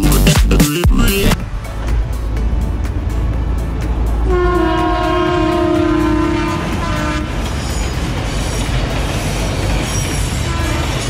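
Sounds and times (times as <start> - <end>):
passing train rumbling: 1.0 - 11.0
locomotive horn blast: 4.2 - 7.6, 10.4 - 11.0.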